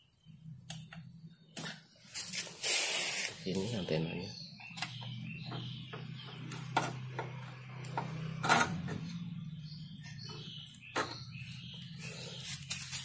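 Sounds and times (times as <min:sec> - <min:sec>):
steady low hum: 0:03.4 - 0:13.0.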